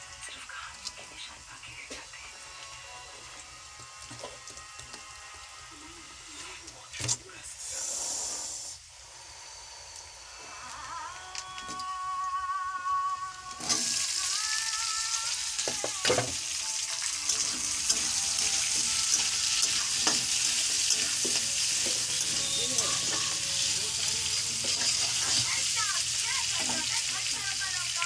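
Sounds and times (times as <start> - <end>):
onions sizzling in hot oil: 0.0 - 6.8, 7.6 - 28.0
metal spatula scraping pan: 17.0 - 25.6.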